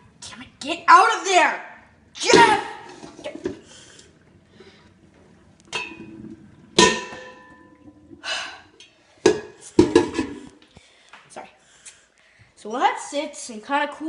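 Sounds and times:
metal pot clanking on counter: 0:05.7 - 0:06.1, 0:06.8 - 0:07.8, 0:09.2 - 0:10.5.

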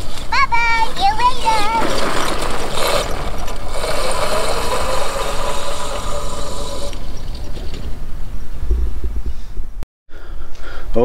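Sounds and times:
tyres rumbling on stone pavers: 0:00.0 - 0:08.2
electric motor whining: 0:02.1 - 0:07.5.

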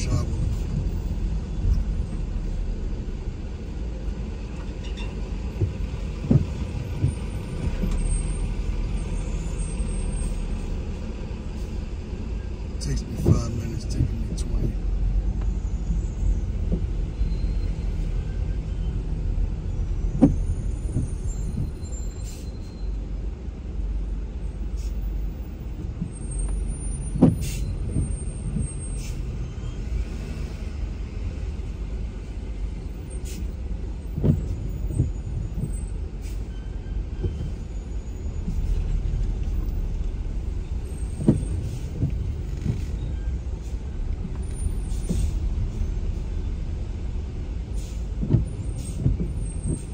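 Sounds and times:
engine and traffic rumble: 0:00.0 - 0:49.9
windshield wipers knocking: 0:05.5 - 0:08.0, 0:13.1 - 0:14.8, 0:16.6 - 0:17.0, 0:20.1 - 0:21.8, 0:27.1 - 0:28.8, 0:34.1 - 0:35.8, 0:37.2 - 0:37.6, 0:41.0 - 0:43.0, 0:48.2 - 0:49.9.

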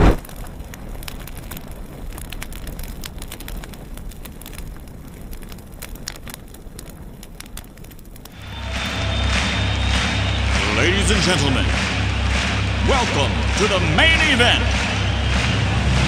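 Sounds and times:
fire crackling and popping: 0:00.0 - 0:16.0
low rumble: 0:08.4 - 0:16.0.

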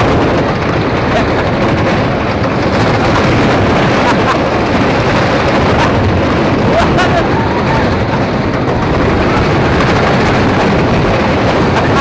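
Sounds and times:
roller coaster train clattering on track: 0:00.0 - 0:12.0
wind noise on microphone: 0:00.0 - 0:12.0.

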